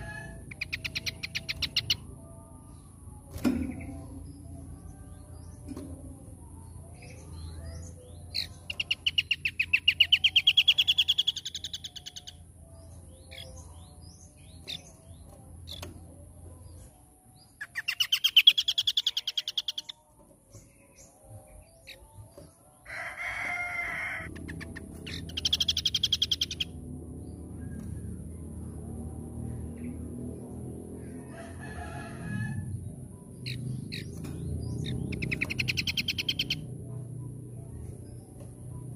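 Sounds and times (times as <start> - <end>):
bird singing rapid trills: 0.0 - 22.8, 24.2 - 31.5, 32.2 - 38.9.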